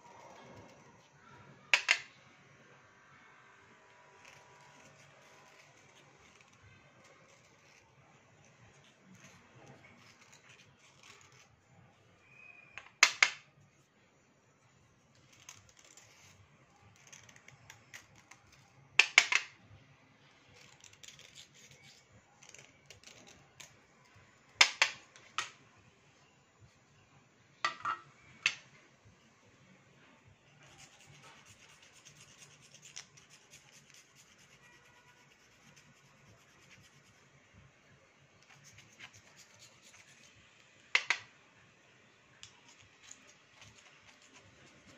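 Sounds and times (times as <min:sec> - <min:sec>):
knife scraping slate pencil: 0:04.1 - 0:11.5, 0:15.2 - 0:18.6, 0:20.6 - 0:23.8, 0:30.6 - 0:37.2, 0:38.4 - 0:40.4.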